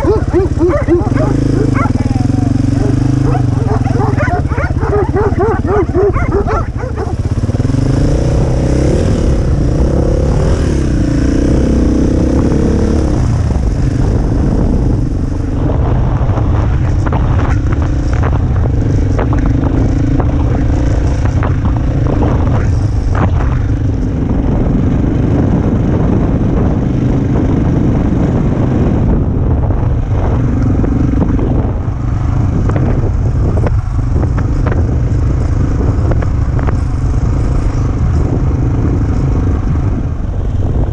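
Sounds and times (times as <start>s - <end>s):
dirt bike engine revving: 0.0s - 13.4s.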